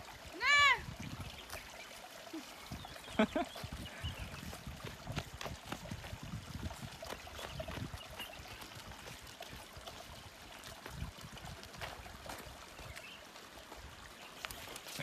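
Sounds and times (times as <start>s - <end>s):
wind gusts on microphone: 0.4s - 1.6s, 2.6s - 13.0s
footsteps on gravel: 10.6s - 15.0s.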